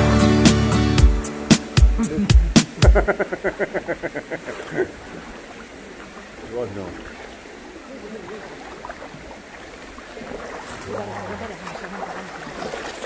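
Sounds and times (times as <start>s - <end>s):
rushing mountain stream: 1.0s - 13.0s
people's voices: 2.0s - 4.9s, 10.7s - 12.7s.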